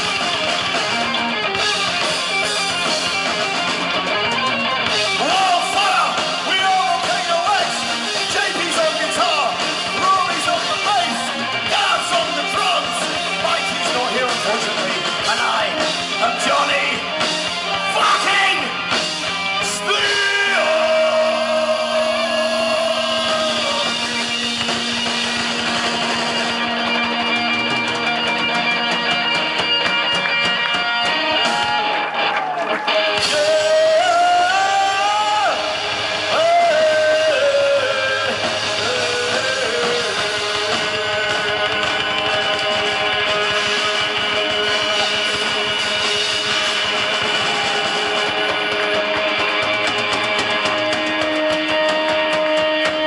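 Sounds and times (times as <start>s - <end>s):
heavy metal band playing live: 0.0s - 53.0s
person singing: 19.6s - 24.0s, 33.2s - 41.4s.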